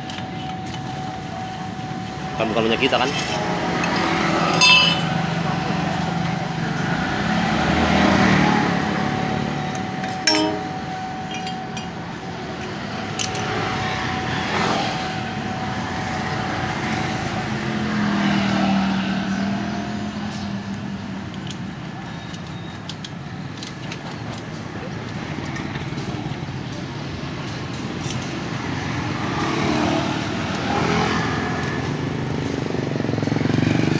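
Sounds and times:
street traffic passing: 0.0 - 33.9
sharp metallic clink: 3.0 - 5.4, 9.8 - 12.1.

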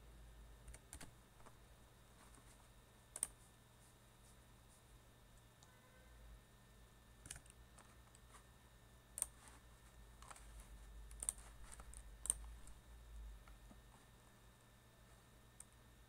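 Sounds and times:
steady low hum: 0.0 - 16.0
computer keyboard keystrokes: 0.6 - 1.1, 3.2 - 3.4, 7.2 - 7.6, 11.1 - 12.8
mouse clicks: 7.2 - 8.2, 9.2 - 9.4, 11.1 - 12.8.

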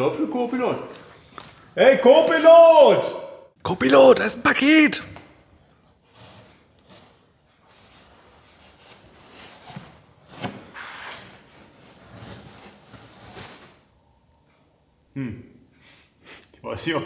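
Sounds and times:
rustling and rubbing of parcel: 5.8 - 14.0.

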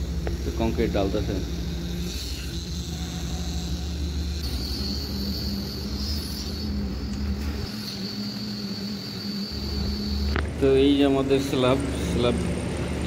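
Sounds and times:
high whine: 0.0 - 13.0
pump engine drone: 0.0 - 13.0.

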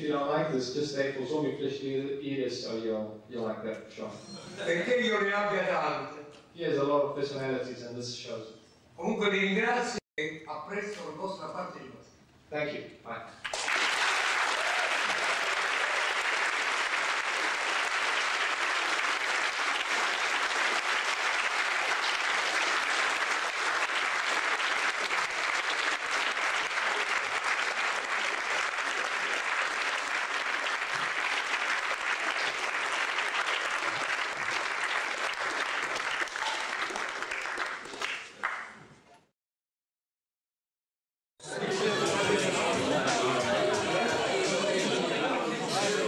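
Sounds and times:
audience applauding: 13.4 - 38.8.

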